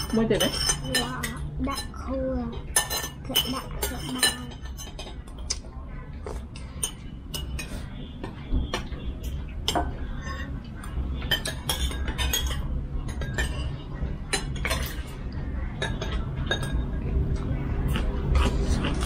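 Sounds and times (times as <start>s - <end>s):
cutlery clinking on dishes: 0.0s - 2.0s, 2.7s - 5.3s, 6.6s - 10.5s, 11.1s - 15.2s, 15.8s - 17.0s.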